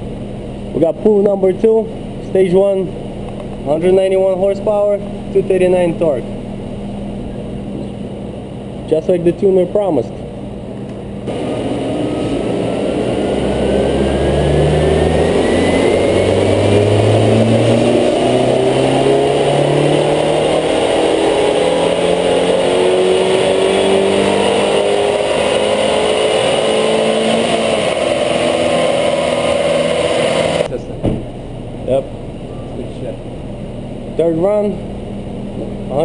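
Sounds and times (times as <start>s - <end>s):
car engine revving: 11.2s - 30.9s.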